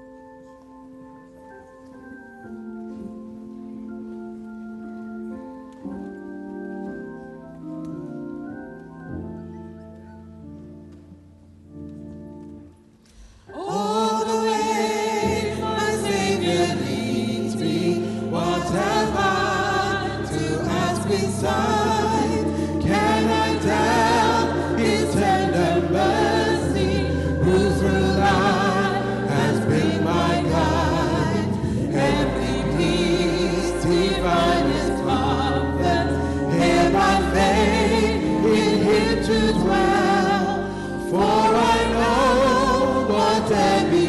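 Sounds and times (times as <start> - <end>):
instrumental accompaniment: 0.0 - 44.0
group singing a hymn: 13.5 - 44.0.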